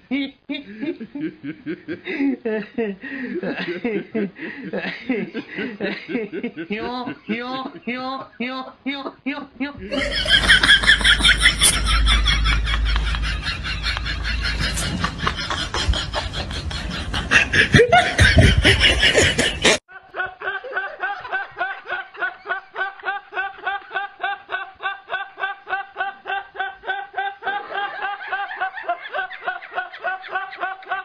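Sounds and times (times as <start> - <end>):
young man's high-pitched laugh: 0.1 - 31.0
noisy loud mix of sound: 9.9 - 19.8.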